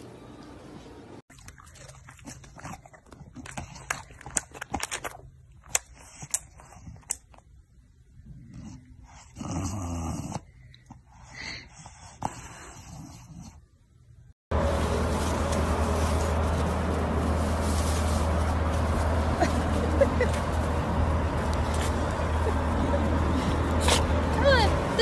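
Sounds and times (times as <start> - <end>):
dog snorting and breathing: 8.2 - 13.7, 21.1 - 24.4.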